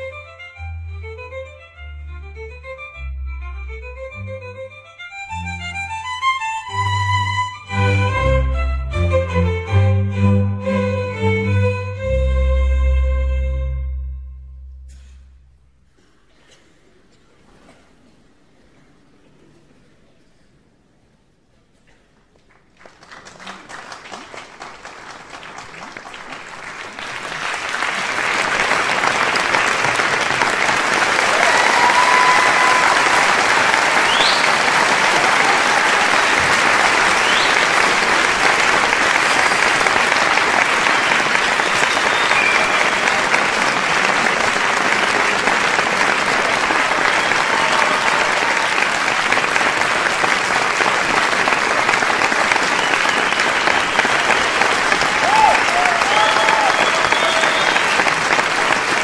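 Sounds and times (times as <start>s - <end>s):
audience applauding: 22.3s - 59.0s
faint whistles: 40.9s - 43.0s, 52.7s - 54.7s, 56.1s - 58.1s.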